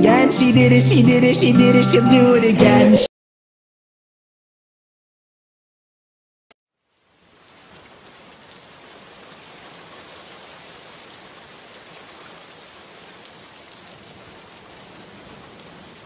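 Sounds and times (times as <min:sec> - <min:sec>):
steady rain hiss: 0:06.8 - 0:16.0.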